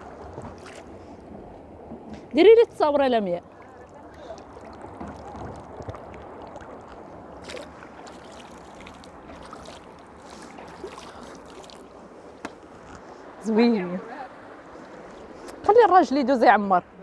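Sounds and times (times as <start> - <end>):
water flowing: 0.0 - 17.0
hands splashing in water: 4.1 - 12.6.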